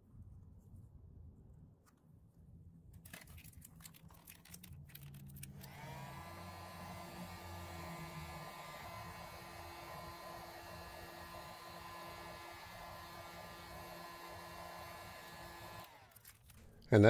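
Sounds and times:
heat gun fan humming: 0:05.5 - 0:17.0.

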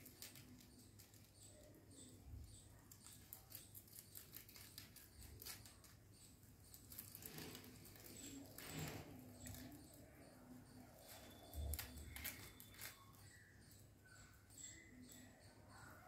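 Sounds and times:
rabbits chewing leaves: 0:00.0 - 0:16.0.

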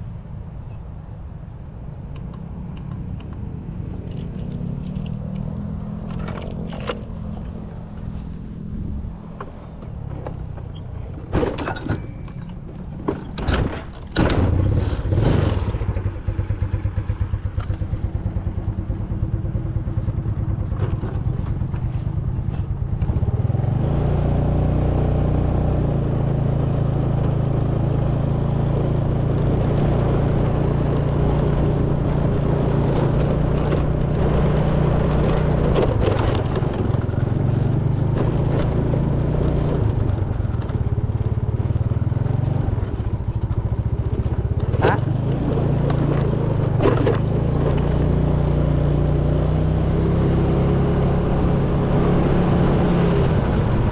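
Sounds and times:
handling knocks and clatter: 0:04.0 - 0:08.1, 0:09.3 - 0:14.8
scooter engine running: 0:13.7 - 0:53.9.

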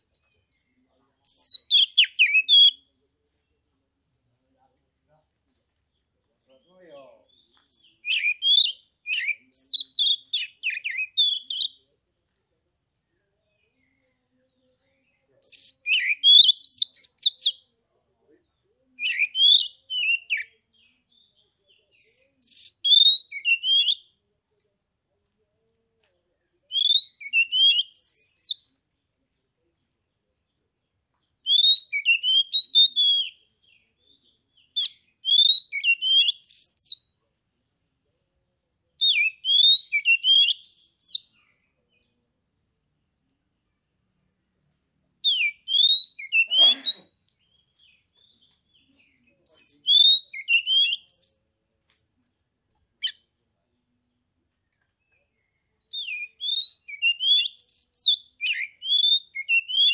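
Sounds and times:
bird singing whistled notes: 0:01.2 - 0:02.9, 0:06.5 - 0:11.9, 0:14.8 - 0:17.7, 0:19.0 - 0:24.2, 0:26.2 - 0:28.8, 0:31.2 - 0:37.2, 0:39.0 - 0:42.1, 0:45.2 - 0:51.6, 0:53.0 - 0:53.3, 0:55.0 - 0:59.9.

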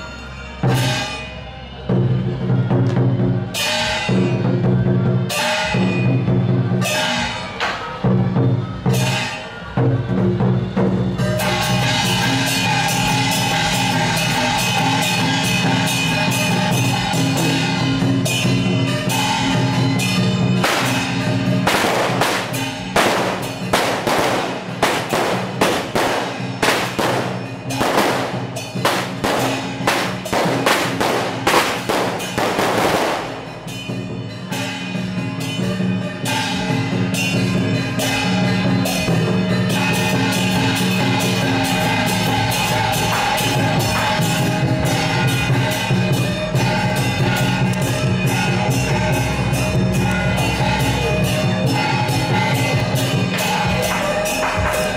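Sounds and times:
procession music with drums: 0:00.0 - 0:54.9
sharp loud crashes: 0:20.6 - 0:33.5.

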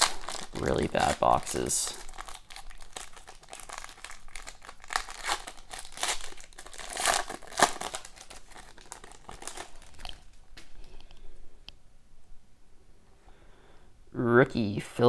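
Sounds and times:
wrapper crinkling and tearing: 0:00.0 - 0:10.7.

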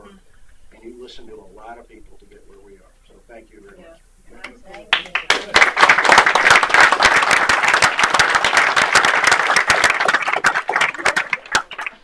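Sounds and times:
group applauding: 0:04.9 - 0:12.0.

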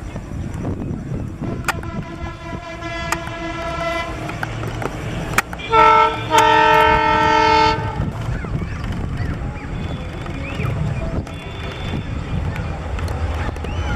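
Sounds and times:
locomotive air horn blasts: 0:01.4 - 0:04.4, 0:05.2 - 0:08.1.

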